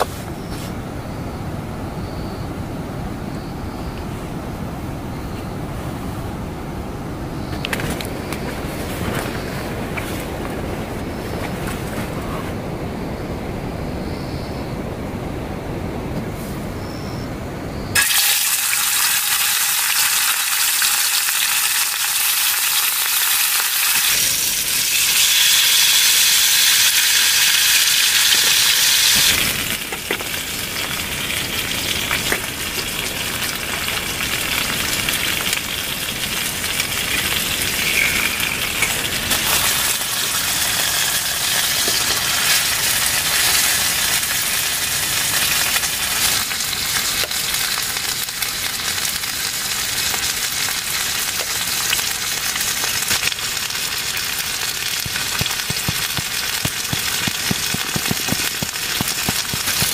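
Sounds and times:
hot oil sizzling: 18.0s - 59.9s.

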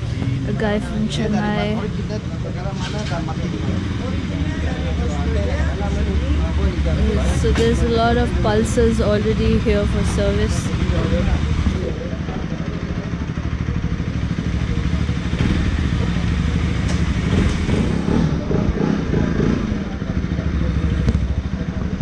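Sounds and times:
faint voices talking: 0.0s - 22.0s
motorcycle engine running at low revs: 0.0s - 22.0s.

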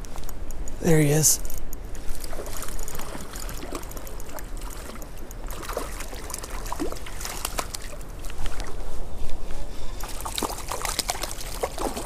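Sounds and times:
water splashing: 2.0s - 8.8s, 10.0s - 12.0s.

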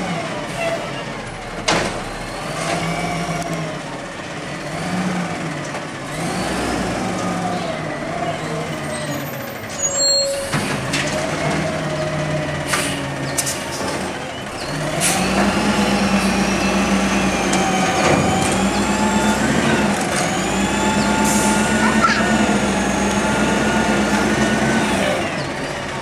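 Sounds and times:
garbage truck diesel engine: 0.0s - 26.0s
air brakes squealing: 8.8s - 10.7s.

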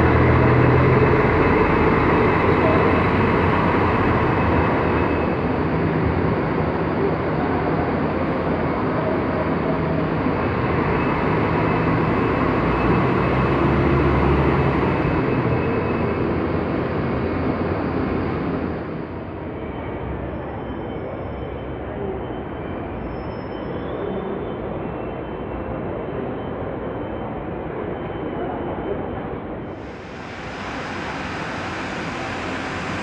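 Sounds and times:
bus engines running: 0.0s - 20.6s, 28.8s - 33.0s
traffic noise: 0.0s - 22.9s, 24.0s - 33.0s.

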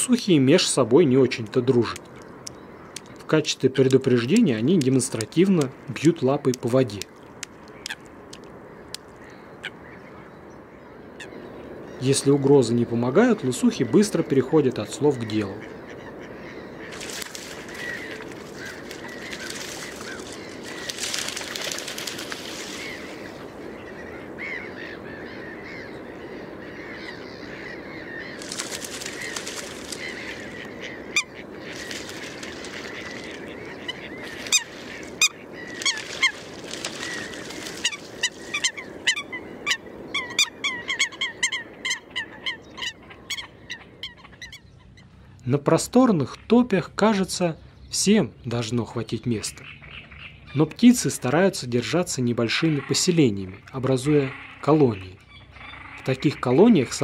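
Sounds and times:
birds splashing on water: 15.6s - 44.5s.

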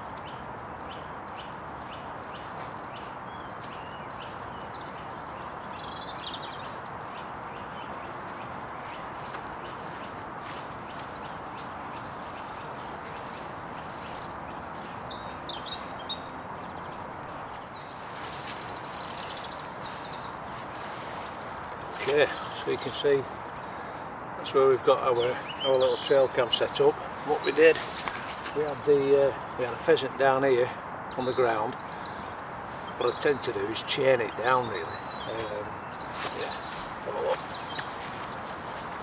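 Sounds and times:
birds chirping: 0.0s - 39.0s
steady background hiss: 0.0s - 39.0s
footsteps through grass: 7.4s - 16.0s, 17.3s - 22.4s, 26.8s - 28.8s, 35.3s - 39.0s.

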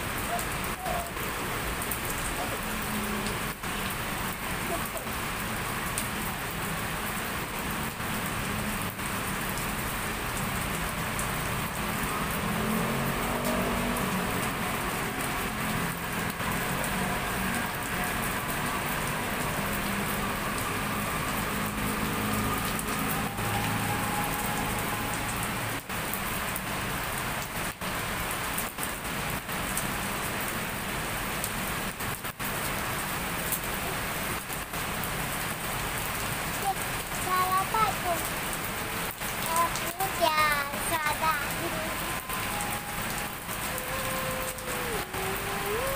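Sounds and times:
heavy rain falling: 0.0s - 45.9s.

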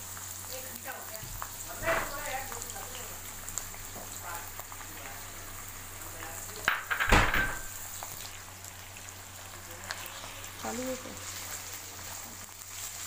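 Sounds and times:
vegetables sizzling in hot oil: 0.0s - 13.0s
spatula stirring in pan: 8.0s - 13.0s.

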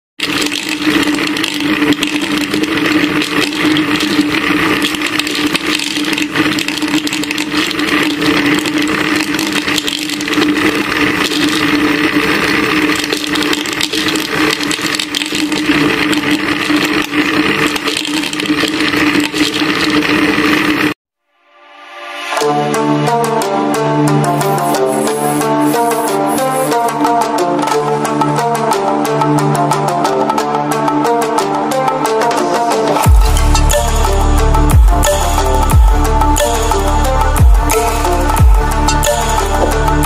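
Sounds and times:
grinding mill rattling: 0.2s - 20.9s
electric motor humming: 24.3s - 26.9s.

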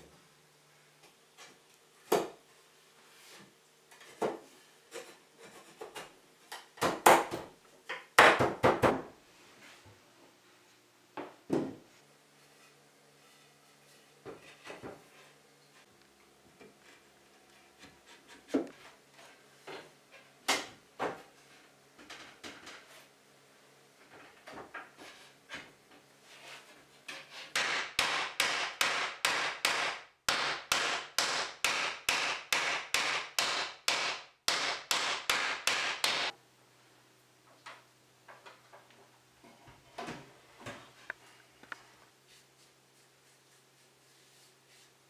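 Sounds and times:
wooden mallet striking wood: 27.6s - 36.3s.

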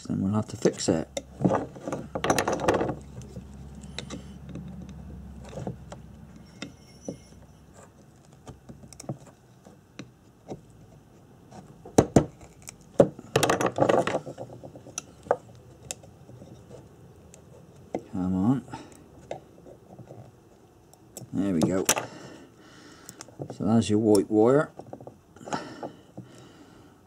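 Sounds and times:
sharp knocks and rattle: 1.2s - 3.2s, 11.9s - 15.5s.

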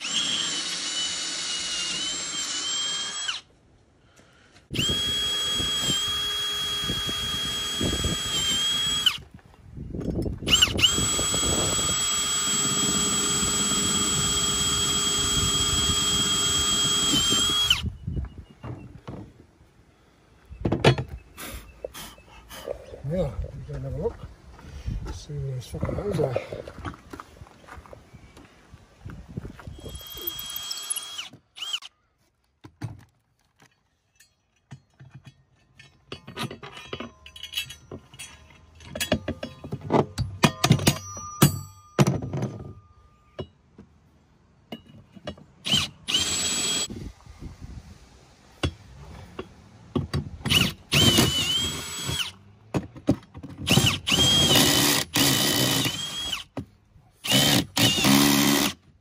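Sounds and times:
cordless drill whining: 0.0s - 3.5s, 4.7s - 9.2s, 10.4s - 17.9s, 29.7s - 31.9s, 45.6s - 46.9s, 50.5s - 52.4s, 53.6s - 56.5s, 57.2s - 58.8s
knocks and clatter: 34.6s - 43.9s.

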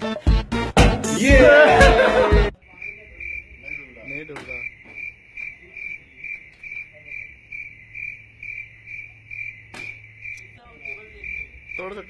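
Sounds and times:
cricket chirping: 2.5s - 12.0s.

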